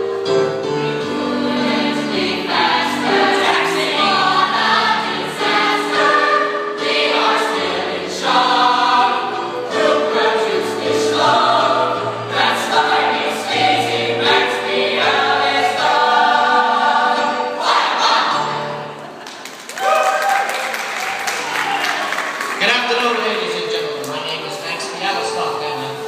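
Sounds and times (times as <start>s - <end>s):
low musical accompaniment: 0.0s - 19.2s, 22.6s - 26.0s
youth chorus singing: 0.6s - 19.2s.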